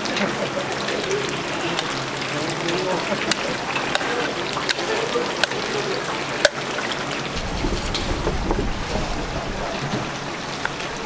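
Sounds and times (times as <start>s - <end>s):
oil sizzling and bubbling: 0.0s - 11.0s
low rumble: 7.3s - 10.4s.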